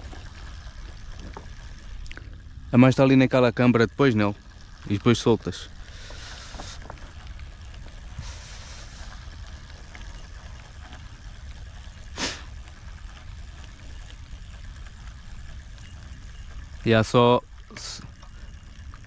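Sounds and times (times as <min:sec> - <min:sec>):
moving water hissing: 0:05.8 - 0:06.9, 0:08.2 - 0:09.2, 0:12.1 - 0:12.6.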